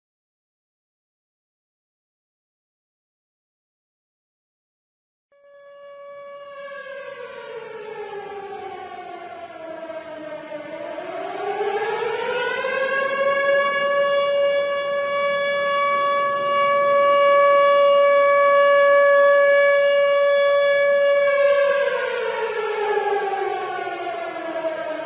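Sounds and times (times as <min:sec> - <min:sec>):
tornado siren wailing: 0:05.4 - 0:25.0.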